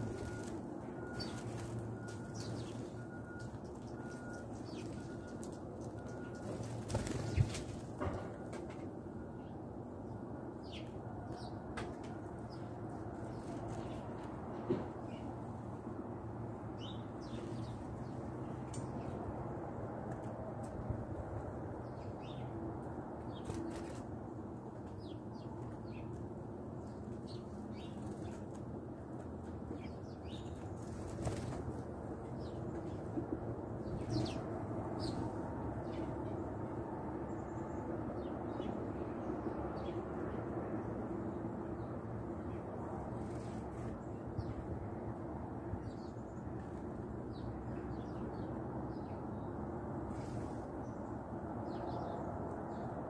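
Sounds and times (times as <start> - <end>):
small birds chirping: 0.0 - 7.8, 26.8 - 28.6, 29.7 - 33.2, 33.8 - 36.4
sparrows chirping: 0.0 - 7.8, 9.3 - 11.6, 12.4 - 14.2, 16.8 - 19.2, 21.8 - 22.6, 24.8 - 28.6, 29.6 - 31.6, 33.8 - 40.3, 45.8 - 49.5, 50.1 - 52.9
bird wingbeats: 4.6 - 8.0, 30.8 - 31.8.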